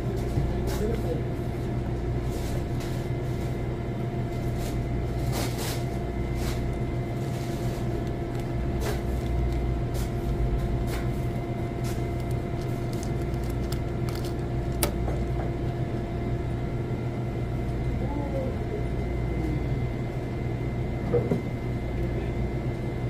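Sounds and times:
low machinery hum: 0.0s - 23.0s
grill parts clicking: 12.2s - 15.0s.

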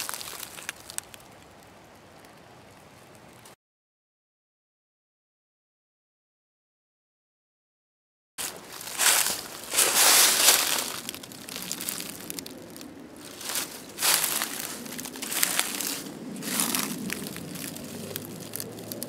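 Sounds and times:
footsteps crunching dry leaves: 0.0s - 1.1s, 8.4s - 19.0s.

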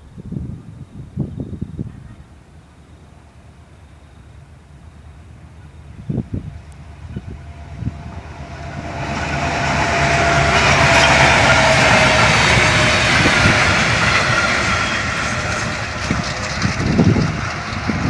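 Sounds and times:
diesel locomotive passing: 0.7s - 18.0s
wheels clicking over rail joints: 9.0s - 18.0s.

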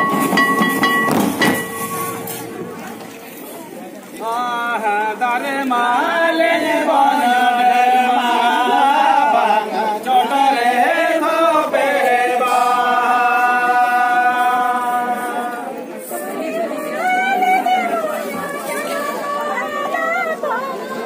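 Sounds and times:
voices singing a chant-like song: 4.2s - 21.0s.

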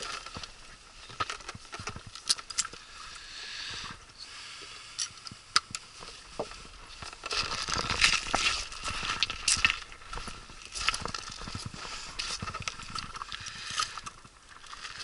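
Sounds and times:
footsteps crunching on gravel: 6.2s - 13.4s.

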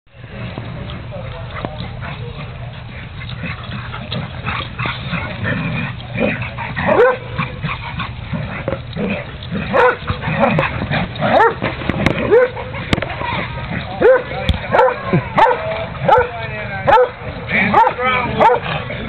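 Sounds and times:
dogs yipping and barking: 1.4s - 19.0s.

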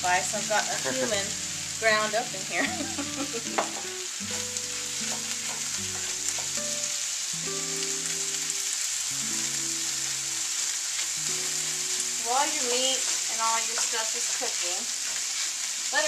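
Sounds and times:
soft background music: 0.0s - 13.3s
food sizzling in a frying pan: 0.0s - 16.0s
wooden spoon scraping a pan: 3.6s - 6.7s, 11.9s - 16.0s.

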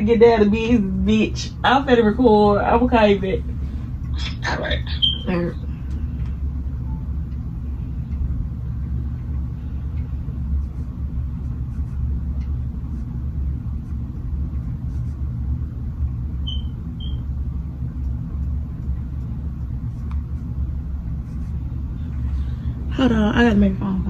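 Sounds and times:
low rumble: 0.0s - 24.0s
high-pitched chirps: 16.4s - 17.2s.

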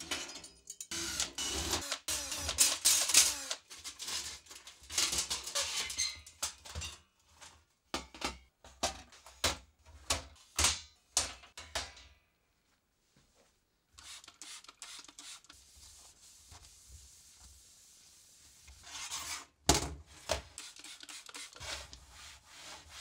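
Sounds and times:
cordless drill whirring: 0.9s - 3.6s.

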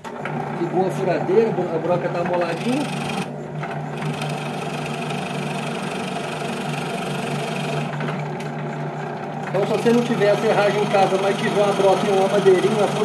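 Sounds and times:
drill press motor humming: 0.0s - 13.0s
spade bit boring into wood: 2.0s - 3.3s.

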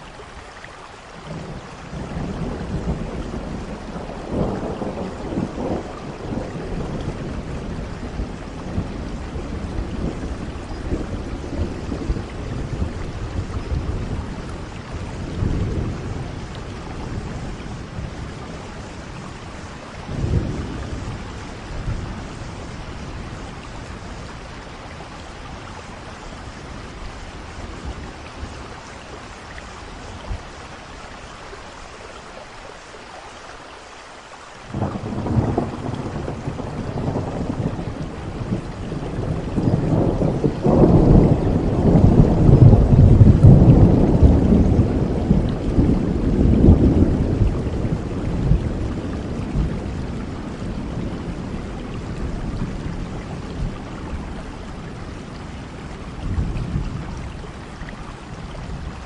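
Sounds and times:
steady rain: 0.0s - 59.0s
rolling thunder rumbles: 1.3s - 30.6s, 34.7s - 59.0s.

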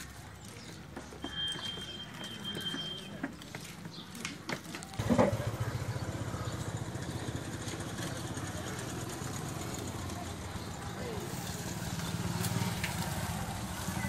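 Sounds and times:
small engine starting and idling: 5.0s - 14.0s.

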